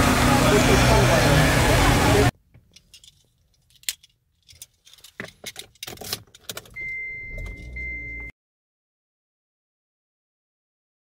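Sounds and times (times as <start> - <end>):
clicks and rattles of handling: 2.6 - 6.8
steady high electronic beep: 6.8 - 8.3.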